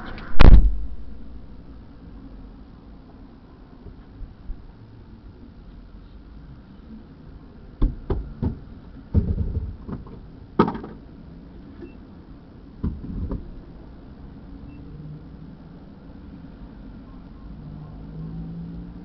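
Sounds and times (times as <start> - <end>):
low traffic rumble: 0.0 - 19.0
knocks and thumps: 7.8 - 11.0, 12.8 - 13.5.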